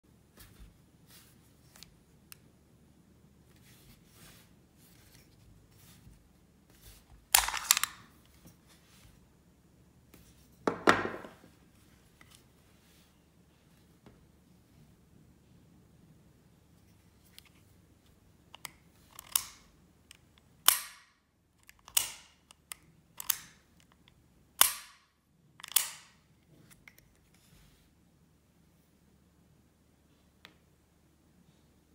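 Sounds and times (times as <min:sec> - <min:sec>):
pistol magazine metal clicks and sliding: 0:07.3 - 0:08.0, 0:18.5 - 0:25.0, 0:25.6 - 0:26.2
pistol action metallic snaps: 0:20.6 - 0:21.2, 0:24.6 - 0:26.2.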